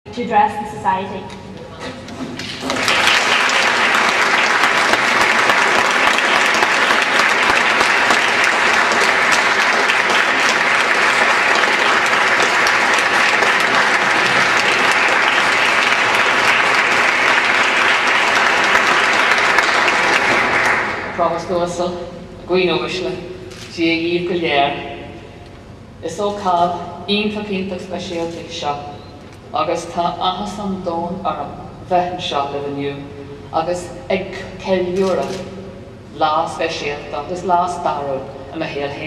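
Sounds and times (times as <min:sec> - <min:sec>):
audience applauding: 0:02.4 - 0:21.2.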